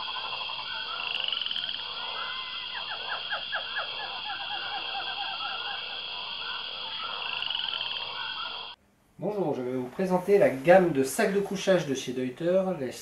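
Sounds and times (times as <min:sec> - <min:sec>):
frogs croaking in trills: 0:00.0 - 0:08.8.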